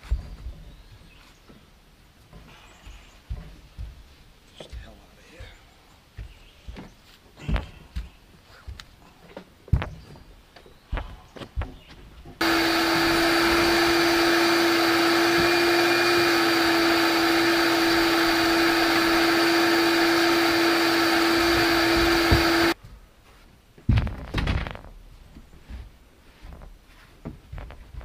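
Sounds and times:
shop vacuum running: 12.4s - 22.8s.

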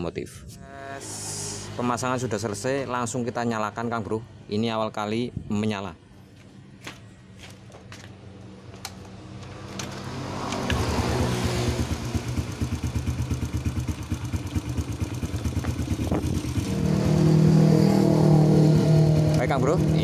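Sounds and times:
motorcycle engine starting and running: 8.7s - 20.0s.

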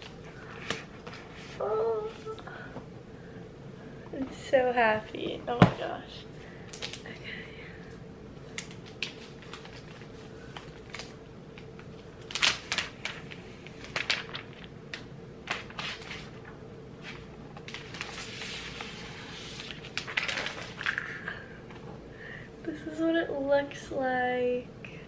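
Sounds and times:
paper crinkling and crackling: 8.5s - 21.4s.

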